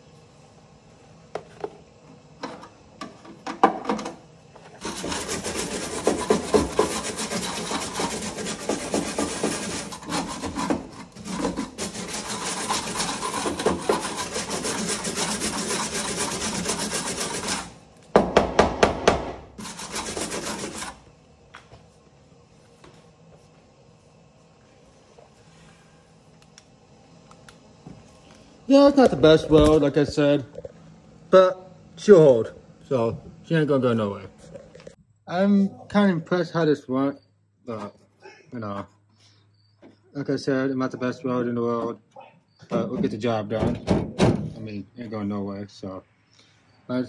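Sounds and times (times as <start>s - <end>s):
scraping on sheet metal: 4.8s - 17.8s, 19.6s - 21.0s.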